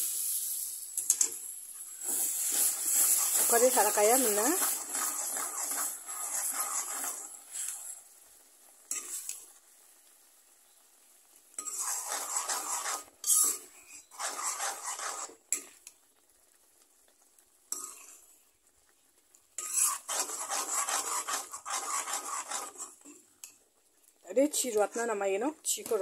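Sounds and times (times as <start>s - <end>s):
metal ladle scraping a wok: 2.0s - 7.9s, 11.6s - 15.3s, 19.6s - 23.0s.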